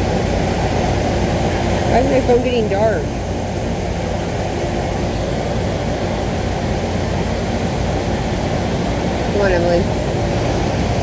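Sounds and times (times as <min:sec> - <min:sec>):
low rumble of air handling: 0:00.0 - 0:11.0.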